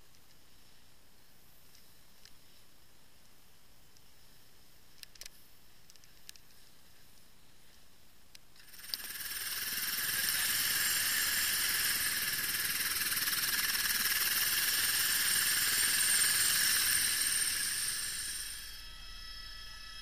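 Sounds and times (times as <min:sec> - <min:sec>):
helicopter turbine whine: 0:08.6 - 0:20.0.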